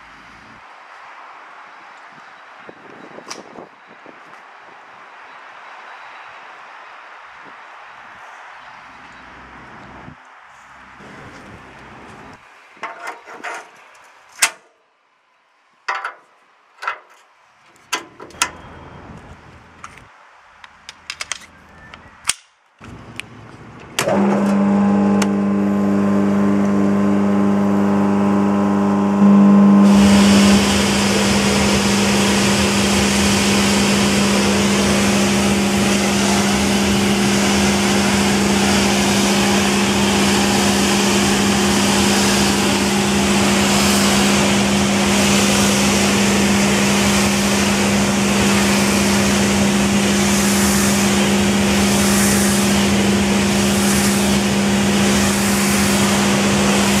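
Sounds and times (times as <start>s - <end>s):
pressure washer motor humming: 24.0s - 57.0s
water jet hissing: 29.8s - 57.0s.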